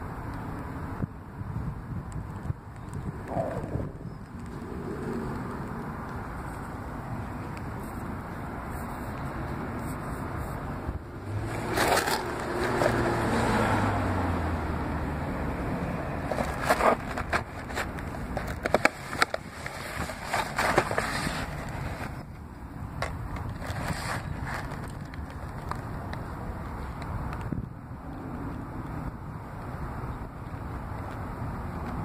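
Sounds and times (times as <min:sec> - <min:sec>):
vehicle passing: 0:09.6 - 0:17.9
cardboard box handled: 0:11.4 - 0:13.7, 0:16.2 - 0:22.3.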